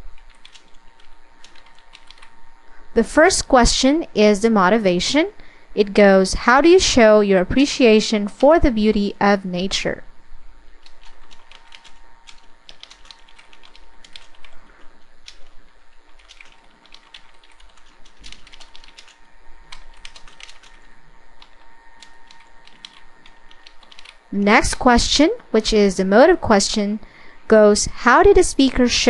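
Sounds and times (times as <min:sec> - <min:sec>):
keyboard typing: 0:00.2 - 0:02.3, 0:10.8 - 0:24.5.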